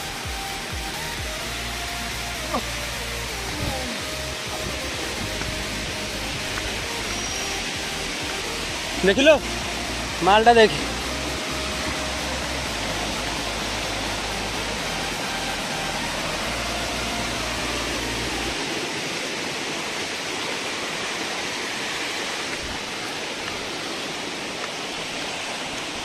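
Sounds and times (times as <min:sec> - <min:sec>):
waterfall rushing over boulders: 0:00.0 - 0:26.0
low rumble: 0:03.1 - 0:10.2.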